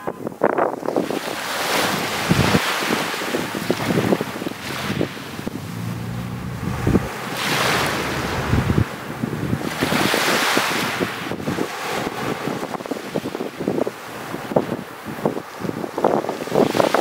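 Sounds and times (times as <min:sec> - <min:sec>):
wind buffeting microphone: 0:00.0 - 0:17.0
small waves breaking on sand: 0:00.8 - 0:17.0.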